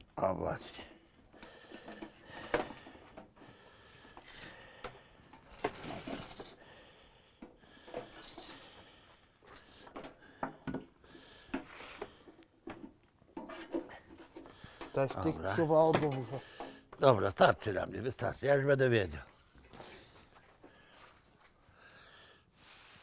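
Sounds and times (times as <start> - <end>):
metal parts and tools clinking: 5.3 - 6.6.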